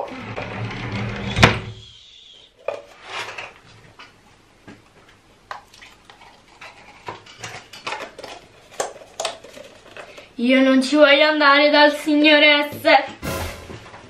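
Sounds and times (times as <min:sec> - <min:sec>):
plastic cups clicking and knocking: 0:06.9 - 0:10.3.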